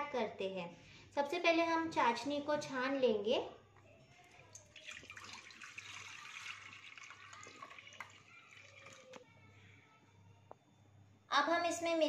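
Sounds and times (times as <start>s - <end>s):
syrup trickling into a bowl: 4.3s - 9.3s.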